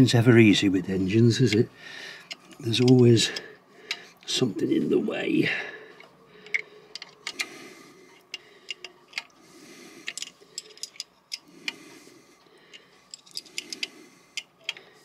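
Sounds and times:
faint handling noise: 0:05.9 - 0:15.0
ratchet spanner clicking: 0:10.0 - 0:11.5, 0:13.0 - 0:14.8.

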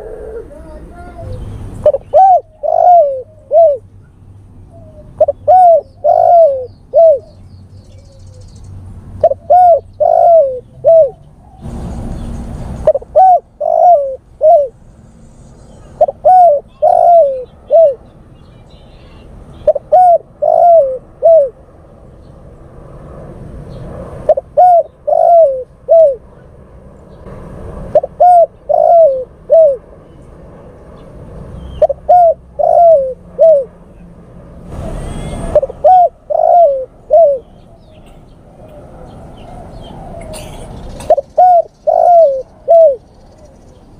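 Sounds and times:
dove cooing: 0:00.0 - 0:03.9, 0:04.7 - 0:08.4, 0:09.2 - 0:11.7, 0:12.8 - 0:14.8, 0:15.6 - 0:18.1, 0:19.6 - 0:21.6, 0:24.2 - 0:26.4, 0:27.9 - 0:29.9, 0:31.6 - 0:33.8, 0:34.8 - 0:43.8.

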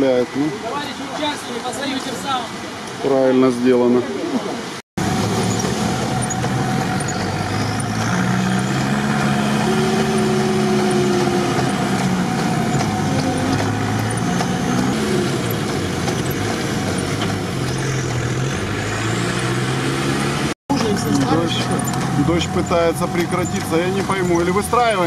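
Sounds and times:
road noise: 0:00.0 - 0:25.0
vehicle engine from inside cab: 0:05.0 - 0:25.0.

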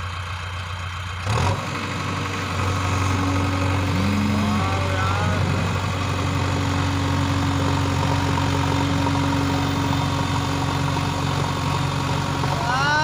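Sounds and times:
diesel engine humming: 0:00.0 - 0:13.0.

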